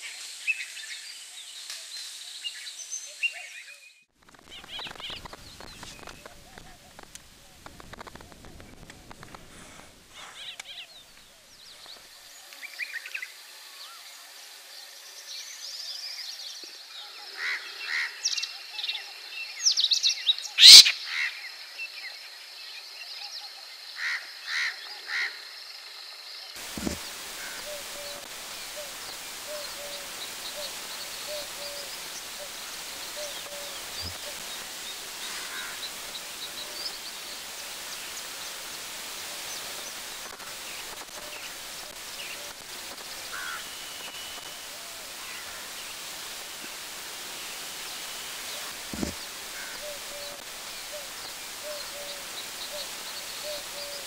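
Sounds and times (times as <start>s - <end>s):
outdoor hiss: 0.0s - 54.0s
lark chirping and trilling: 20.6s - 20.9s
distant bird calls: 26.6s - 54.0s.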